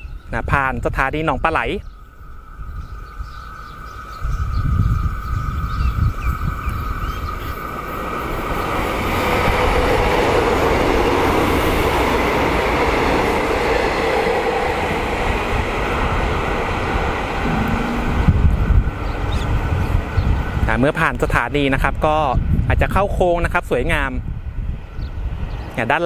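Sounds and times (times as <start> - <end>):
train passing: 2.0 - 22.5.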